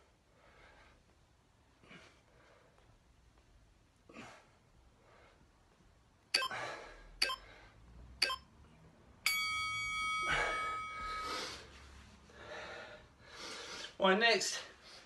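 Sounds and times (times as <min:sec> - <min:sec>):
timer short beeps: 0:06.4 - 0:06.6, 0:07.2 - 0:07.4, 0:08.2 - 0:08.5
long ringing tone: 0:09.3 - 0:11.6.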